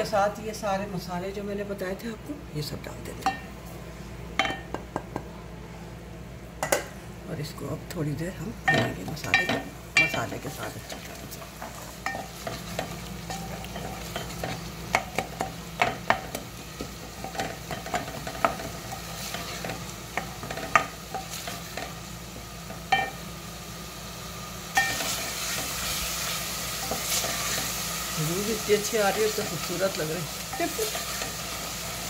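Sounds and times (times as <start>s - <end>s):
sauce sizzling: 9.2s - 32.0s.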